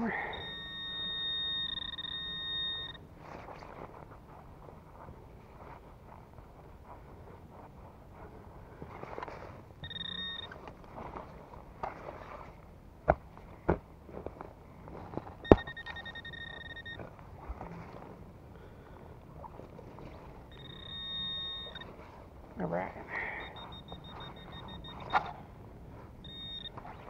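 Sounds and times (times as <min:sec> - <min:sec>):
metal detector electronic tone: 0:00.0 - 0:03.0, 0:09.8 - 0:10.7, 0:15.2 - 0:17.1, 0:20.5 - 0:22.0, 0:23.2 - 0:25.5, 0:26.2 - 0:27.0.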